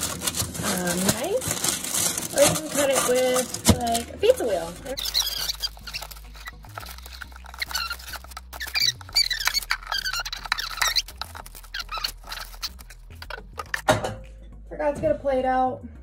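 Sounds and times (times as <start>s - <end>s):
knife squeaking through pancake: 5.0s - 13.8s.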